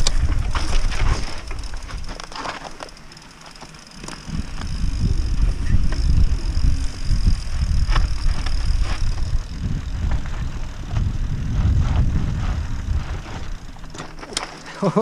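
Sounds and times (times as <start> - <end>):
wind rumbling on microphone: 0.0 - 2.9, 3.9 - 14.6
tyres crunching over dirt and stones: 0.0 - 5.0
bike clicks and rattles: 0.0 - 15.0.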